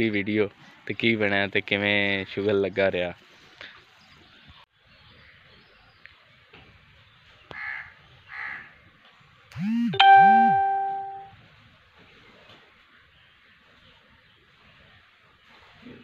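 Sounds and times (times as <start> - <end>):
crow cawing: 7.6 - 8.7
bright ringing chime: 9.9 - 11.3.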